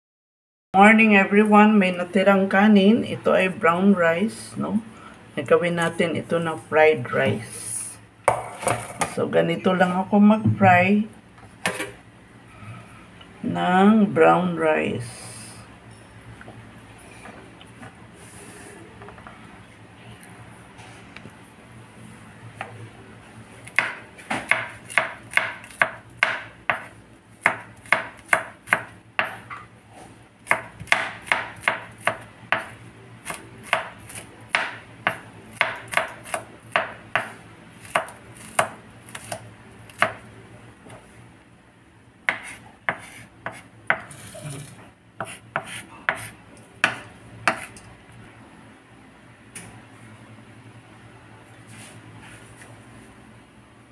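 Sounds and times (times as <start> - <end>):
knife chopping on cutting board: 23.7 - 29.6, 30.5 - 40.2, 42.3 - 44.1, 45.2 - 47.7.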